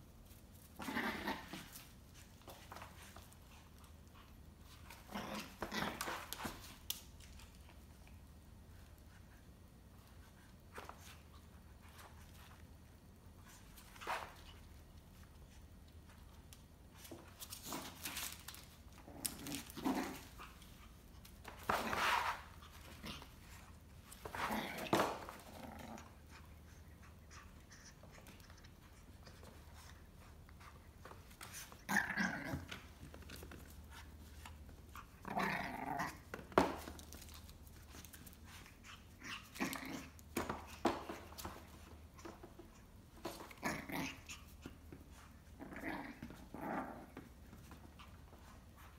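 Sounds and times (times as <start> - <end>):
puppy growling: 0.8 - 1.9, 4.9 - 6.6, 17.6 - 20.9, 21.6 - 29.9, 31.5 - 48.4.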